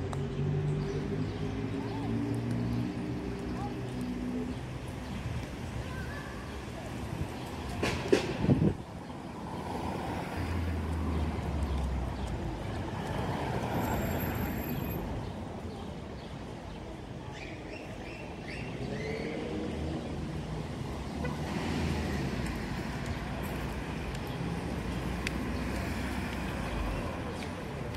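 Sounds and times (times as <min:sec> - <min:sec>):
cars passing: 0:00.0 - 0:17.0, 0:18.4 - 0:27.9
traffic hum: 0:00.0 - 0:27.9.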